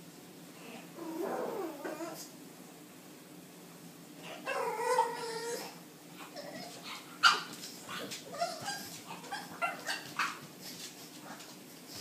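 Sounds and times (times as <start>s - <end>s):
puppy yipping and barking: 7.2s - 10.4s.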